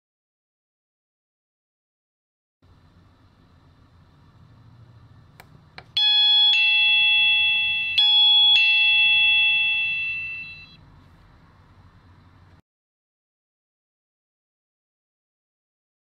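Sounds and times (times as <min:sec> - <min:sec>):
two-note doorbell chime: 0:06.0 - 0:10.8.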